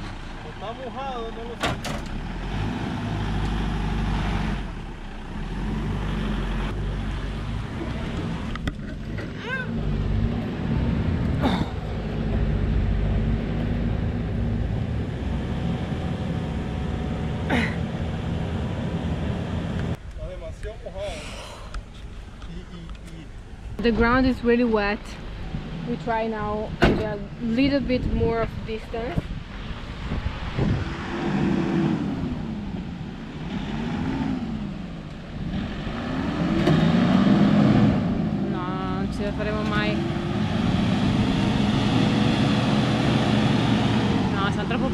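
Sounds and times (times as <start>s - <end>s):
vehicle engine running: 0.0s - 20.1s, 38.1s - 44.9s.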